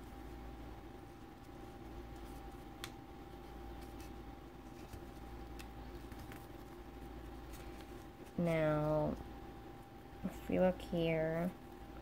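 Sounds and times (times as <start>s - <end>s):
faint steady hum: 0.0s - 12.0s
paper being folded: 1.0s - 9.2s.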